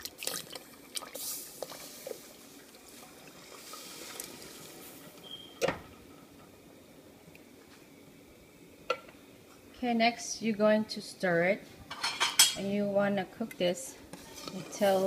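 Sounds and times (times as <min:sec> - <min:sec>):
liquid pouring into pot: 0:00.0 - 0:05.0.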